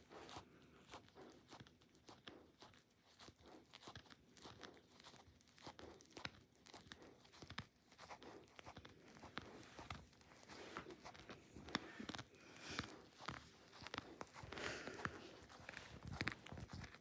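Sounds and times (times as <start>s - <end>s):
dog gnawing fabric toy: 0.0s - 17.0s.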